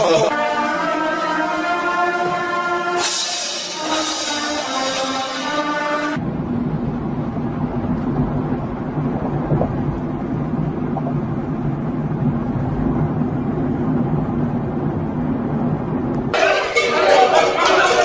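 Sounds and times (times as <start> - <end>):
vehicle engine drone: 0.0 - 16.4
tyres hissing on wet road: 2.8 - 6.2.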